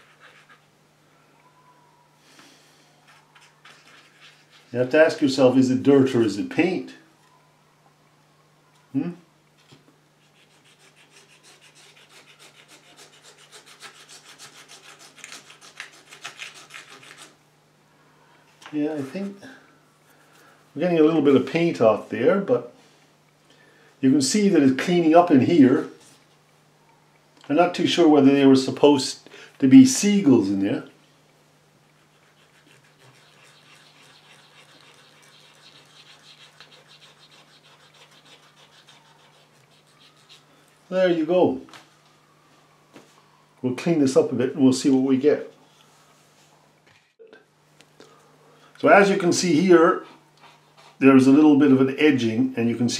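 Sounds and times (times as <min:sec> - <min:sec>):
cotton bud scrubbing painting: 0:03.1 - 0:05.5, 0:10.2 - 0:17.4, 0:31.8 - 0:40.5.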